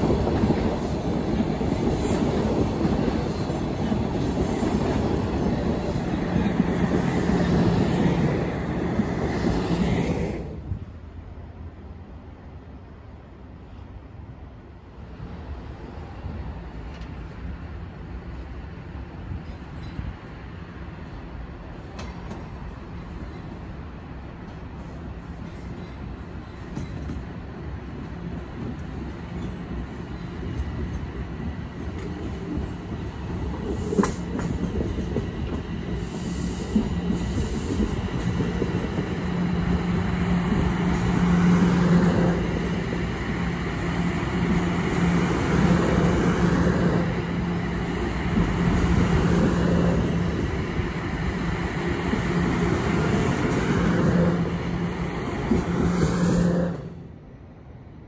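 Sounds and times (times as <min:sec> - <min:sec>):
subway train passing: 0:00.0 - 0:58.0
wheels clacking on rails: 0:25.3 - 0:56.9.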